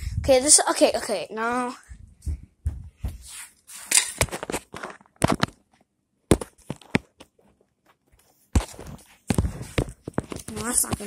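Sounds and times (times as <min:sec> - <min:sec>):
camera handling knocks and rustles: 0:06.3 - 0:07.4, 0:08.5 - 0:11.0.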